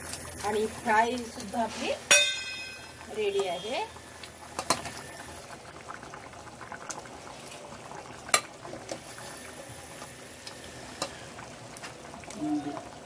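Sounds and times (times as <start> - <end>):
food bubbling and crackling in pan: 0.0 - 13.0
utensil clinking on pan: 2.1 - 2.9.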